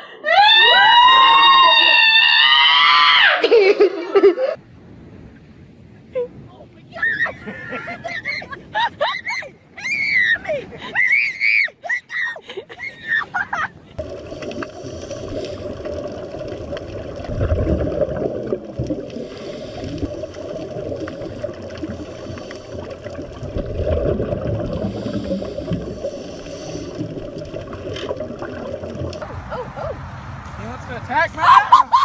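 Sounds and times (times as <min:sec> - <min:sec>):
underwater bubbling and rumble: 0:14.0 - 0:29.4.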